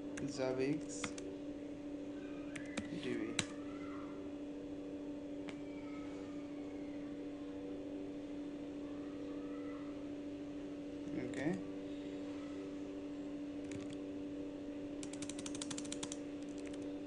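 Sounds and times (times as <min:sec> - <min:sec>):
steady electrical hum: 0:00.0 - 0:17.0
computer keyboard keystrokes: 0:01.0 - 0:01.2, 0:02.5 - 0:03.5, 0:13.6 - 0:14.0, 0:15.0 - 0:16.8.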